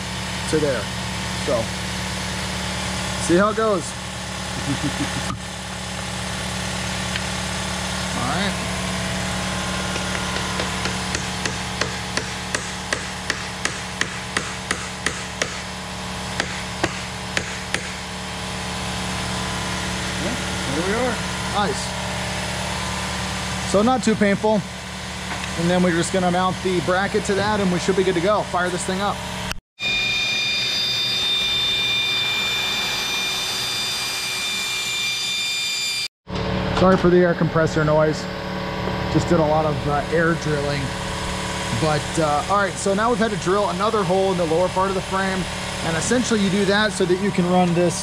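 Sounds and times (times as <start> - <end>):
steady mechanical hum: 0.0 - 48.0
pneumatic drill whining: 2.3 - 21.9, 29.8 - 36.4
hammer striking metal: 9.8 - 15.8, 16.4 - 18.1.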